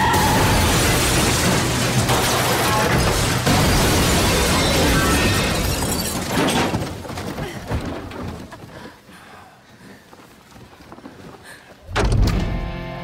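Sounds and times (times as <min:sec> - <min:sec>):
car smashing through boxes: 0:00.0 - 0:07.0
glass shattering: 0:00.0 - 0:07.0
falling debris knocks: 0:00.0 - 0:08.5.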